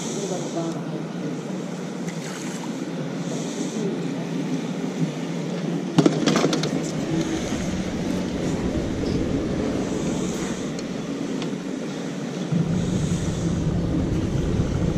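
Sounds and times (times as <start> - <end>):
low mechanical rumble: 6.5 - 14.9.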